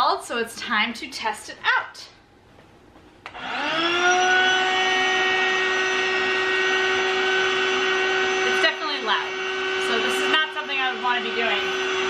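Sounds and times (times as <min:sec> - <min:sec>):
electric air pump humming: 0:03.2 - 0:12.0.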